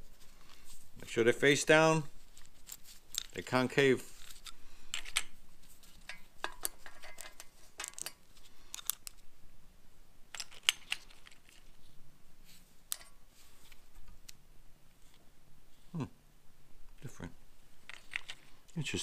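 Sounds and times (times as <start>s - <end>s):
metal bolts and washers clinking: 2.3s - 9.2s, 10.3s - 11.8s, 12.9s - 13.2s, 17.8s - 18.5s.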